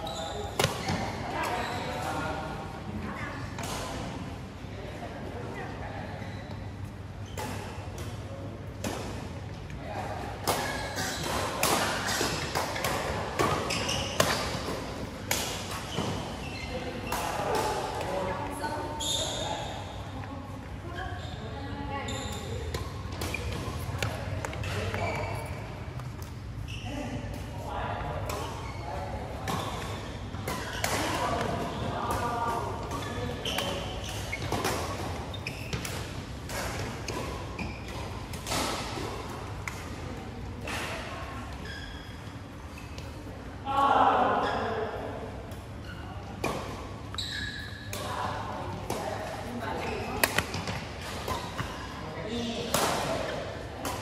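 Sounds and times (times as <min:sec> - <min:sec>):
shoes squeaking on court floor: 0:00.0 - 0:02.3, 0:06.2 - 0:08.0, 0:10.6 - 0:20.0, 0:20.9 - 0:27.4, 0:28.3 - 0:39.1, 0:40.6 - 0:43.3, 0:45.7 - 0:48.3, 0:48.9 - 0:54.0
racket hitting shuttlecock: 0:10.4 - 0:16.2, 0:50.2 - 0:51.7
rackets hitting shuttlecock: 0:50.2 - 0:51.7.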